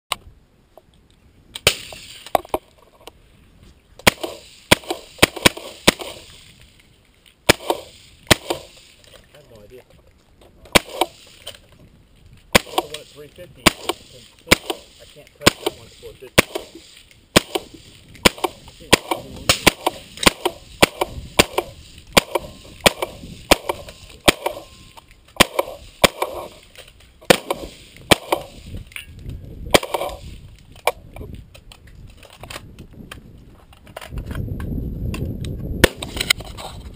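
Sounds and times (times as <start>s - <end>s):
suppressed rifle shots: 1.6s - 2.5s, 4.0s - 6.6s, 7.4s - 8.9s, 10.7s - 11.6s, 12.5s - 28.8s, 29.7s - 30.4s.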